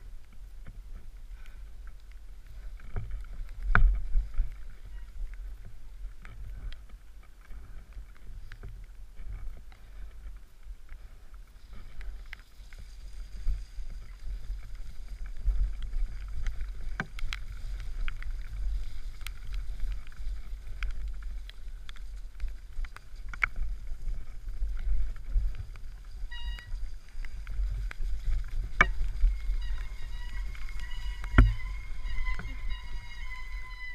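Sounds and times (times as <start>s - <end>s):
wind rumble on microphone: 0.0s - 33.9s
bike rattling and knocking: 11.0s - 33.9s.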